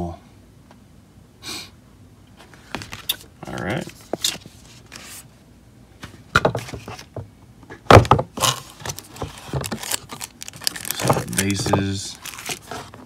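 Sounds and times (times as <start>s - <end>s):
cardboard box being handled: 8.4s - 13.0s.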